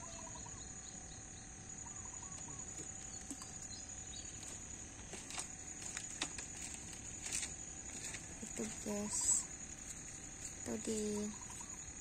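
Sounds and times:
faint bird calls: 0:00.0 - 0:04.6, 0:08.0 - 0:12.0.

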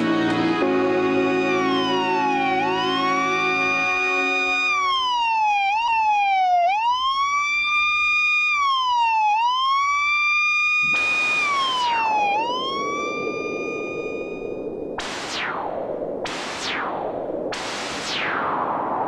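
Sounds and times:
emergency vehicle siren wailing: 0:00.0 - 0:15.6
whoosh falling in pitch: 0:10.8 - 0:19.0
low rushing noise: 0:10.9 - 0:19.0.

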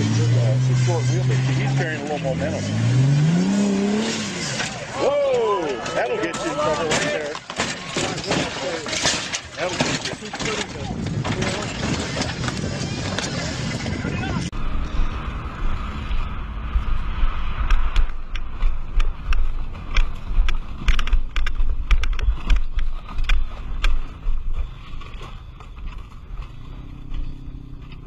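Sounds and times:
sharp clicks and rattles: 0:05.7 - 0:14.1, 0:17.6 - 0:28.0
wind buffeting a microphone: 0:10.6 - 0:19.6
faint engine hum: 0:14.2 - 0:28.0.

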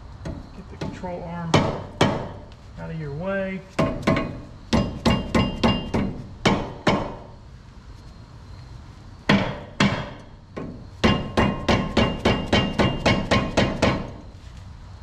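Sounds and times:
hammer striking steel: 0:03.8 - 0:07.3, 0:09.3 - 0:14.1.

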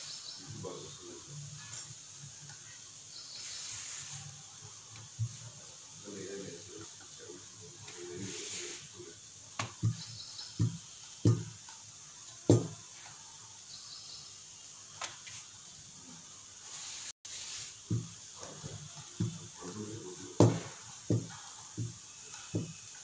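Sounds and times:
faint steady hiss: 0:00.0 - 0:23.0
rolling pin thudding on board: 0:09.6 - 0:11.6, 0:12.5 - 0:12.8, 0:17.8 - 0:19.5, 0:20.4 - 0:22.8.

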